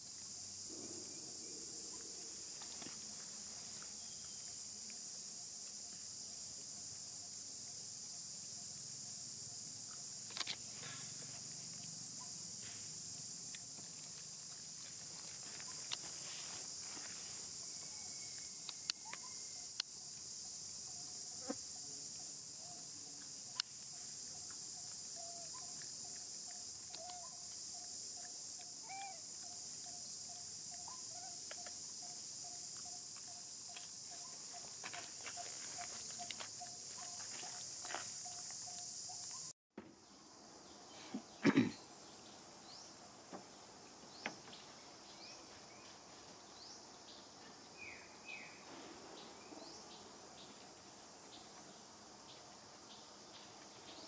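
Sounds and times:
high-pitched insect drone: 0:00.0 - 0:39.6.

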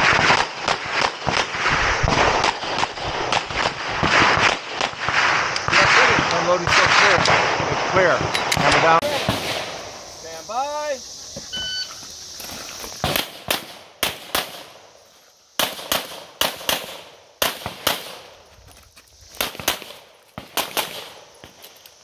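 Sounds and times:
pistol shots: 0:00.0 - 0:09.8, 0:13.0 - 0:14.8, 0:15.6 - 0:18.3, 0:19.4 - 0:21.6
short electronic beep: 0:11.5 - 0:12.0.

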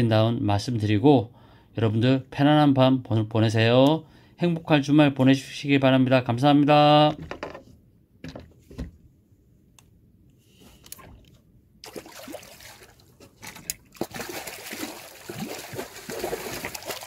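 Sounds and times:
small knocks: 0:07.1 - 0:09.0
water trickling and splashing: 0:11.0 - 0:17.0.

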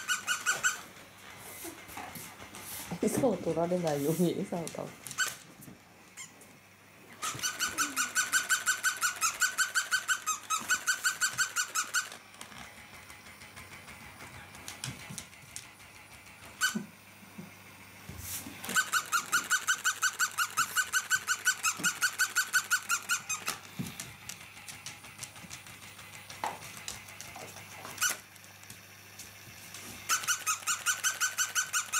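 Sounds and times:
toy dog squeaky yapping: 0:00.0 - 0:00.9, 0:05.2 - 0:05.4, 0:07.2 - 0:12.2, 0:16.6 - 0:16.8, 0:18.6 - 0:23.6, 0:28.0 - 0:28.2, 0:30.1 - 0:31.9.

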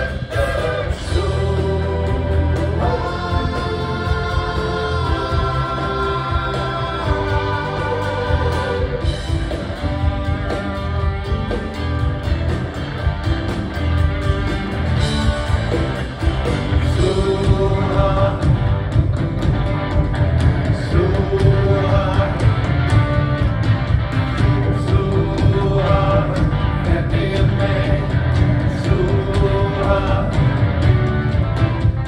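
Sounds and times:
lead vocals: 0:00.0 - 0:10.1, 0:16.4 - 0:19.3, 0:20.4 - 0:31.4
live rock band playing: 0:00.0 - 0:32.0.

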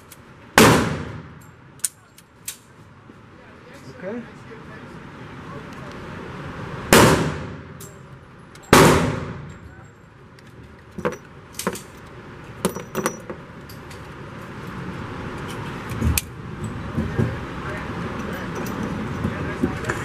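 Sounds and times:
gunshot with echo: 0:00.6 - 0:01.4, 0:06.9 - 0:07.7, 0:08.7 - 0:09.5
metallic clinks of cases dropping: 0:09.4 - 0:14.1.

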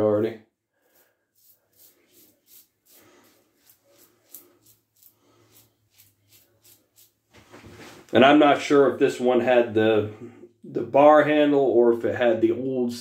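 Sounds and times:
razor scraping stubble: 0:00.9 - 0:07.2.

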